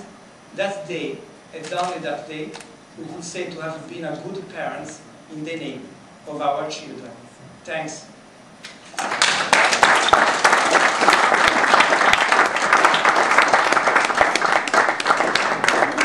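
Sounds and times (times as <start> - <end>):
audience applauding: 9.0 - 16.0.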